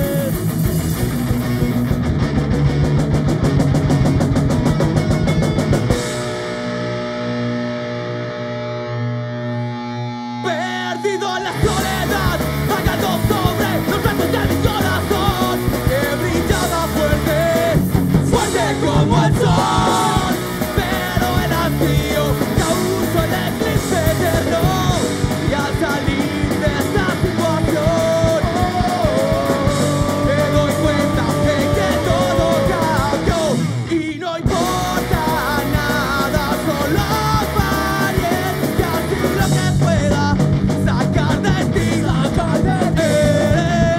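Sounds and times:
distorted electric guitar: 0:00.0 - 0:43.9
drums: 0:00.0 - 0:43.9
electric bass: 0:00.0 - 0:43.9
shouted vocals: 0:10.4 - 0:25.1.

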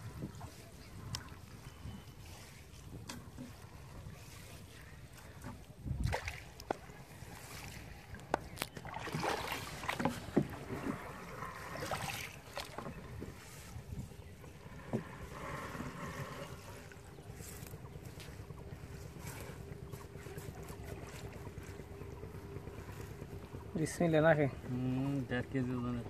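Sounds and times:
wind rumble on microphone: 0:00.0 - 0:26.0
water dripping and splashing: 0:04.2 - 0:10.6.

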